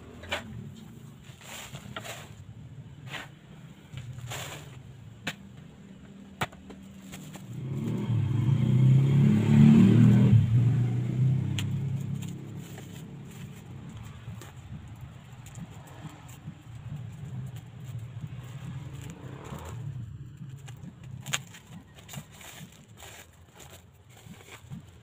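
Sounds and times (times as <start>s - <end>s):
vehicle engine passing by: 7.0s - 25.0s.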